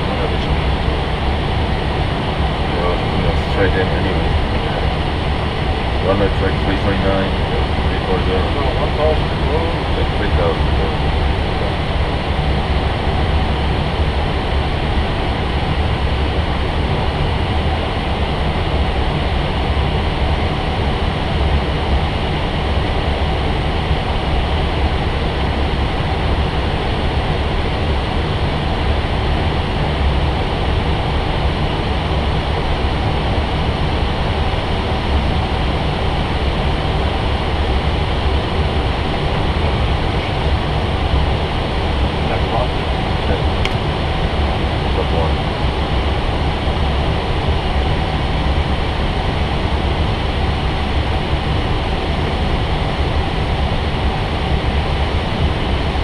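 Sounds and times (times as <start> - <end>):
deep low hum: 0.0 - 56.0
rush of airflow and ventilation: 0.0 - 56.0.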